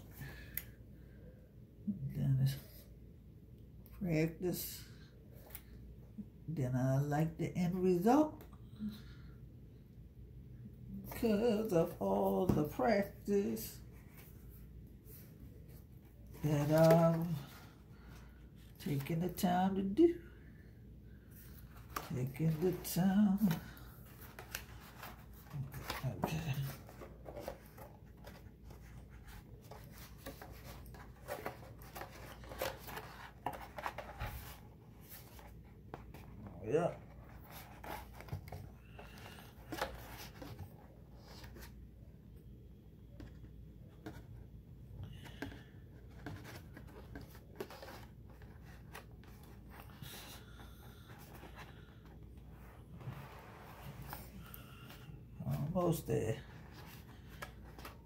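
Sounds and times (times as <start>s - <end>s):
cardstock rustling and crinkling: 11.0s - 20.0s, 21.3s - 41.8s, 45.1s - 58.0s
paper rustling: 21.6s - 36.3s.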